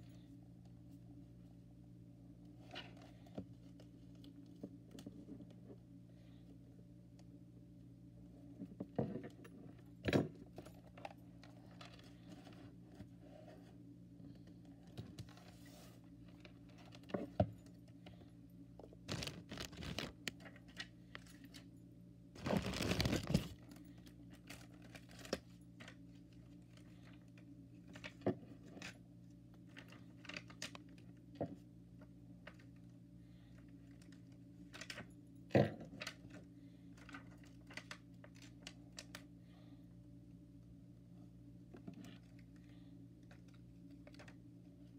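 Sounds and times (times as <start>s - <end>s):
steady low hum: 0.0s - 44.9s
dense paper rustle: 19.0s - 20.2s, 22.4s - 23.6s.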